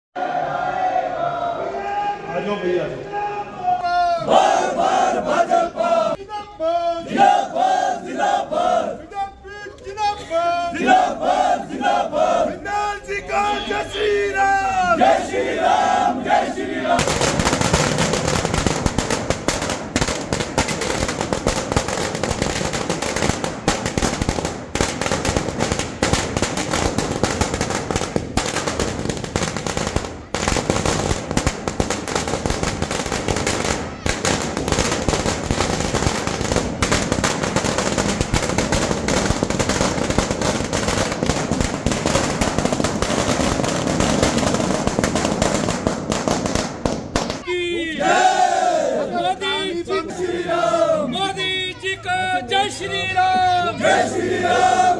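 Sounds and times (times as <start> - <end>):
firecrackers cracking: 16.9 - 47.4.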